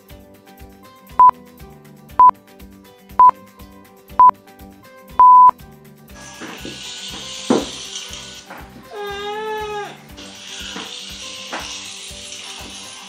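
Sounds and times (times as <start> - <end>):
soft background music: 0.0 - 13.0
electronic countdown beeps: 5.2 - 5.6.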